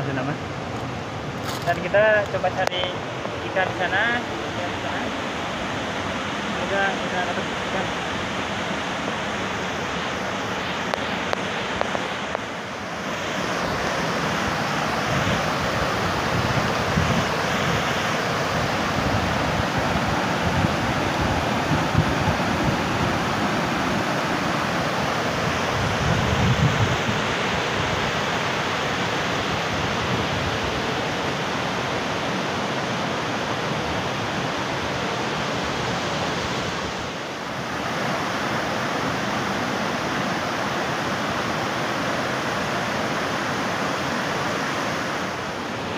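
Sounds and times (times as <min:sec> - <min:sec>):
river water spilling over weir: 0:00.0 - 0:45.9
wind buffeting microphone: 0:14.5 - 0:28.2.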